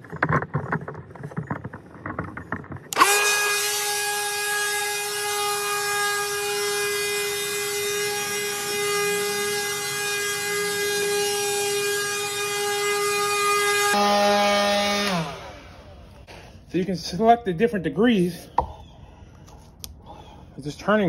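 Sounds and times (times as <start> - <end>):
leaf blower running: 2.9 - 16.5.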